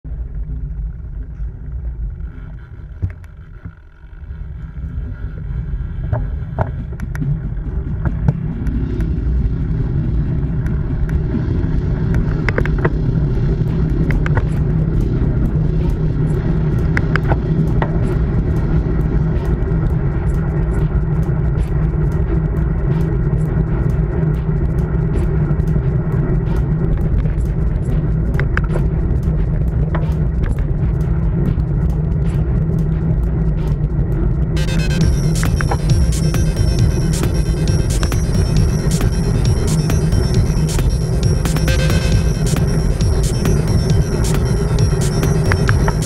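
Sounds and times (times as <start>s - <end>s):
bicycle tyre rumble: 0.0s - 34.6s
sharp clicks and ticks: 6.1s - 46.0s.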